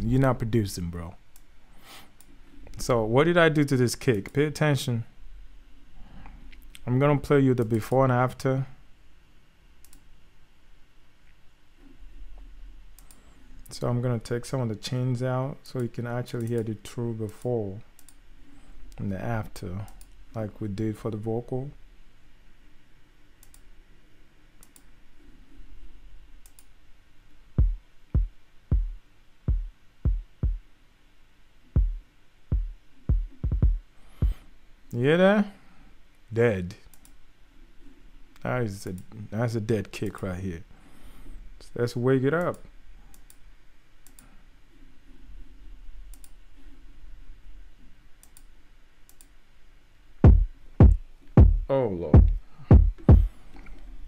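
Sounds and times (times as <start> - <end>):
faint low room hum: 0.0 - 54.0
faint clicks: 9.8 - 10.1, 12.4 - 13.8, 17.3 - 18.2, 19.9 - 20.2, 23.4 - 23.7, 24.6 - 24.9, 26.4 - 26.7, 36.9 - 37.2, 42.4 - 43.4, 44.0 - 44.3, 46.1 - 46.4, 48.2 - 48.5, 49.1 - 49.4
deep kick drum hits: 27.6 - 30.6, 31.8 - 34.4, 50.2 - 53.3.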